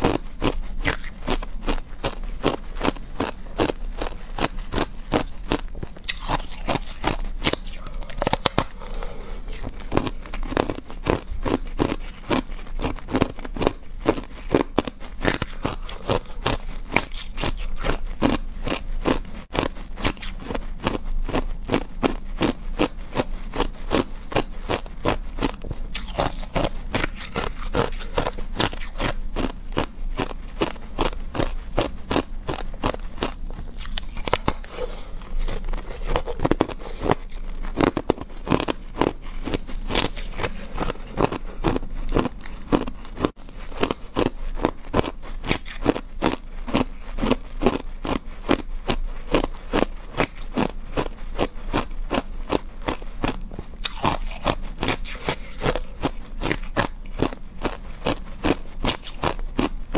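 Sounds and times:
ice crunching while chewed: 0.0 - 59.9.

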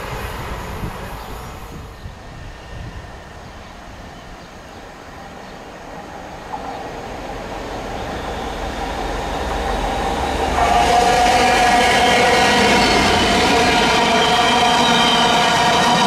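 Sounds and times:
diesel locomotive engine: 0.0 - 16.0
train wheels on rails: 0.0 - 16.0.

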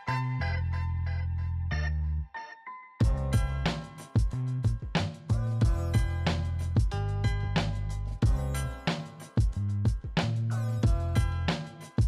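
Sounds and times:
held bass line: 0.1 - 2.3, 3.0 - 11.5
drum beat: 3.0 - 12.0.

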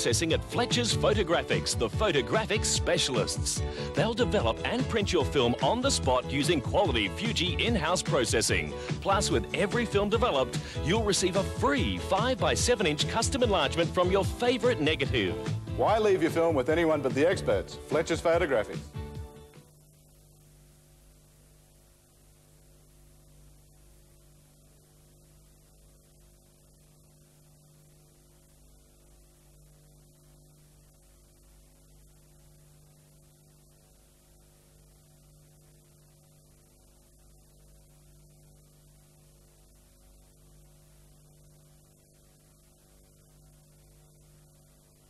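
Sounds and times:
constant hiss: 0.0 - 45.0
faint electrical hum: 12.4 - 45.0.

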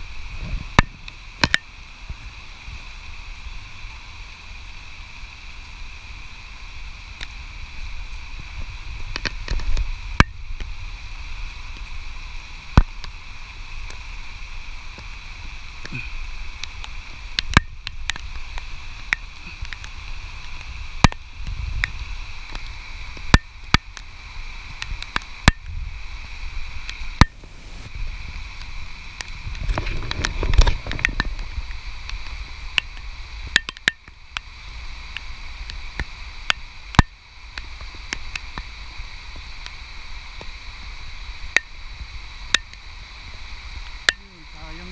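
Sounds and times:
steady hiss: 0.0 - 44.9
trowel scraping soil: 27.2 - 27.9.

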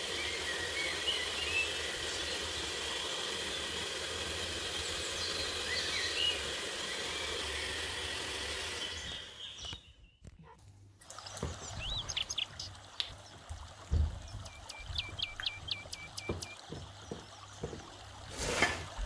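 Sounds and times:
electric hand mixer whisking: 0.0 - 9.6.

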